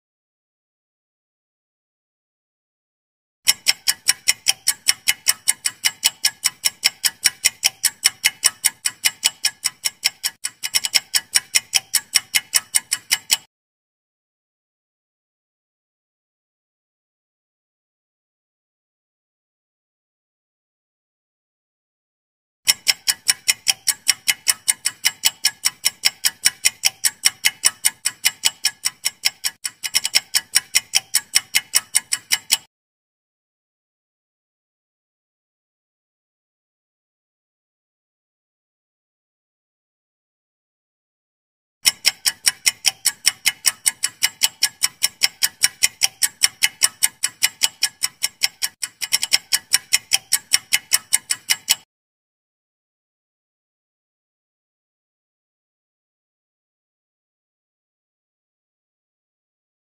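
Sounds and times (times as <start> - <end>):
timer ticking: 3.5 - 13.5, 22.7 - 32.7, 41.8 - 51.9.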